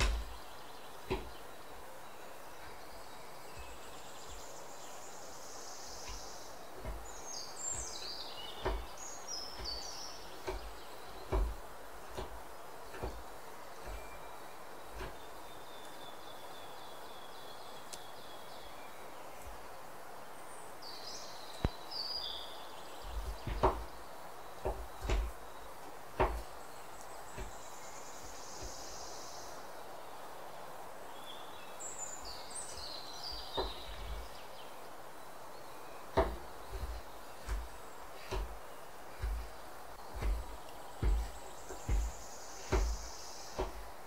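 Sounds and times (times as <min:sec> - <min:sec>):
steady background hiss: 0:00.0 - 0:44.0
knife chopping on wooden board: 0:08.6 - 0:08.9, 0:09.5 - 0:13.2, 0:23.4 - 0:23.9, 0:24.6 - 0:25.4, 0:26.2 - 0:26.5, 0:36.1 - 0:43.9.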